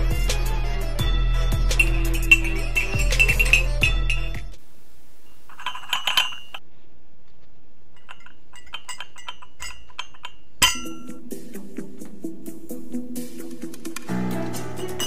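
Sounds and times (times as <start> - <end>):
background music tones: 0.0 - 4.6, 10.6 - 15.0
light ringing clinks: 1.8 - 4.4, 5.3 - 6.6, 8.0 - 11.2.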